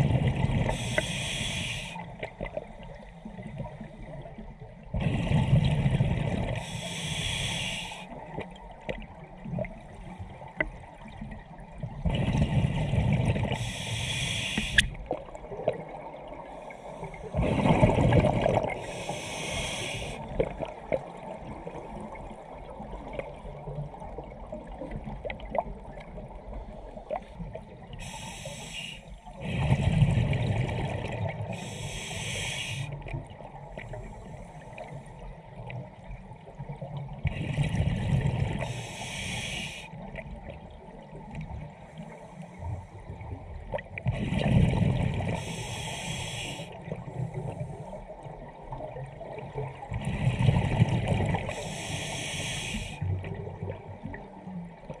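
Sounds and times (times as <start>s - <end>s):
exhaled bubbles rumbling: 0.0s - 0.8s, 2.2s - 6.7s, 8.2s - 13.6s, 17.2s - 19.0s, 29.4s - 31.6s, 35.3s - 38.8s, 43.1s - 45.4s, 46.7s - 51.6s
regulator hissing inhalations: 0.7s - 2.1s, 6.6s - 8.1s, 13.6s - 15.0s, 18.8s - 20.2s, 28.0s - 29.2s, 31.5s - 33.0s, 38.6s - 40.0s, 45.4s - 46.8s, 51.5s - 53.0s.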